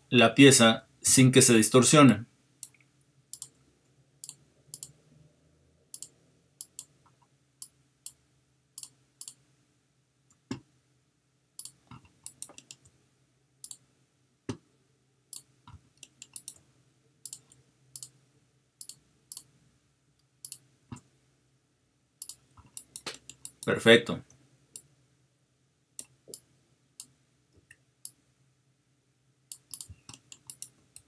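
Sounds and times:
faint steady hum: 0.0 - 31.0
mouse and keyboard clicking: 2.6 - 3.6, 4.2 - 5.0, 5.9 - 6.9, 8.8 - 9.4, 11.6 - 12.9, 15.3 - 16.6, 17.2 - 18.2, 18.8 - 19.5, 20.4 - 21.1, 22.2 - 23.7, 29.5 - 31.0.

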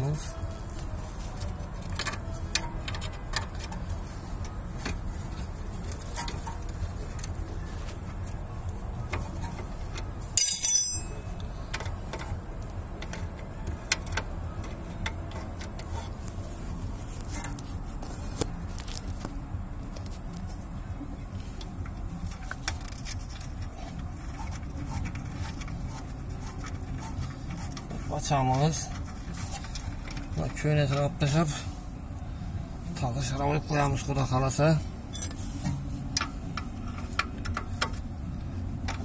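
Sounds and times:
low hum: 0.0 - 28.1
hand tools clicking and knocking: 9.1 - 16.1
loud metallic clink: 10.4 - 11.4.

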